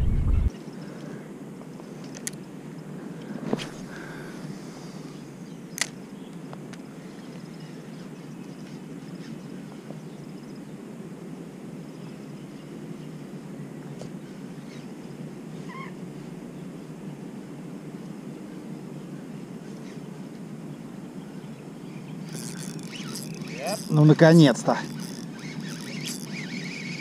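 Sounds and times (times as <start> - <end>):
steady low reel noise: 0.0 - 27.0
fishing reel bail clicking shut: 2.1 - 2.4, 22.3 - 23.9, 24.8 - 27.0
bird chirp: 24.8 - 27.0.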